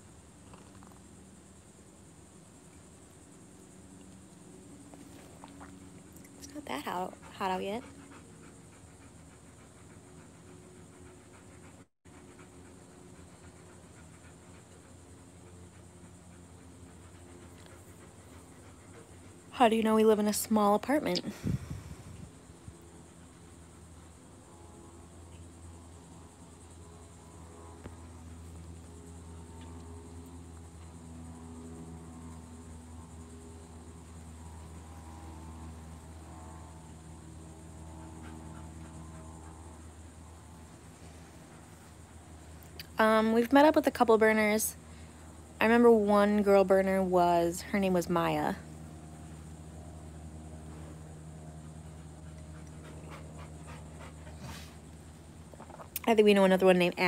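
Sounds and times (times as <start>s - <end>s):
high insect chorus: 0.0s - 57.0s
low steady hum: 0.0s - 57.0s
dog panting: 5.0s - 19.6s, 37.8s - 42.5s, 51.6s - 55.0s.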